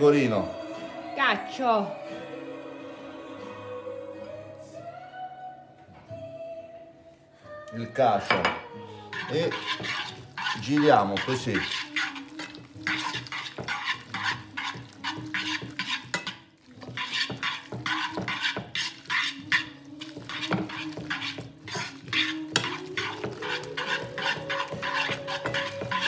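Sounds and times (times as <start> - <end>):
metal tongs scraping pan: 9.1 - 26.0.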